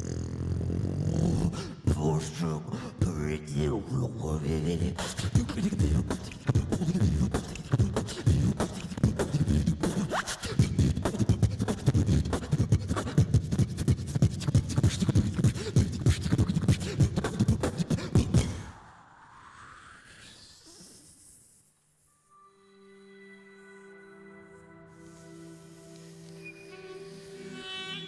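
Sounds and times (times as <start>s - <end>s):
beatboxing into microphone: 4.4s - 18.8s
whistle-like glides: 22.1s - 28.0s.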